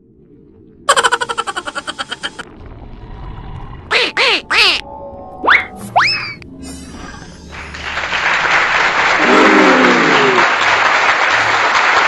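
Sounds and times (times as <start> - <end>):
crowd applause: 7.5 - 12.0.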